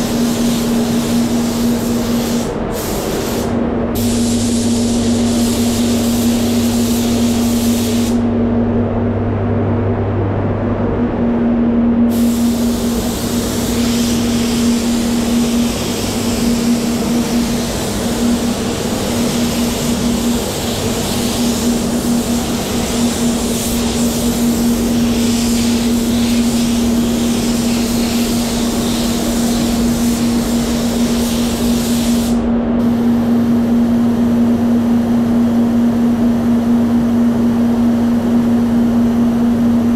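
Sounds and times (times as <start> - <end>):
spray gun air hiss: 0.0 - 8.3, 12.1 - 34.4
spray booth fans humming: 0.0 - 39.9.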